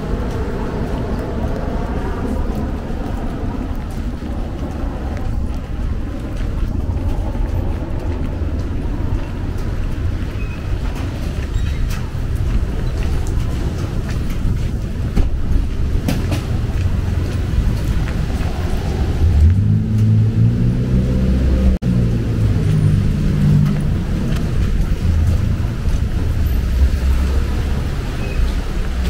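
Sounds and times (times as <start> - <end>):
traffic rumble: 0.0 - 29.0
vehicle engine passing: 16.2 - 29.0.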